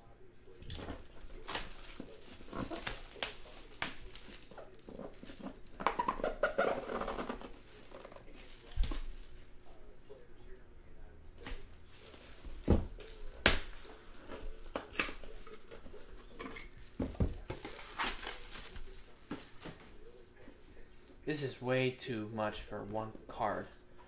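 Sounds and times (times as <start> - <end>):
plastic wrap crinkling and tearing: 0.7 - 9.8, 11.4 - 20.2.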